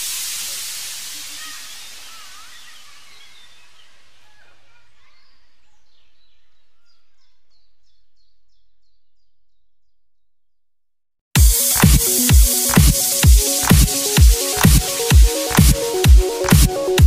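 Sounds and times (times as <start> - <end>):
background hiss: 0.0 - 5.5
birds chirping: 1.3 - 10.0.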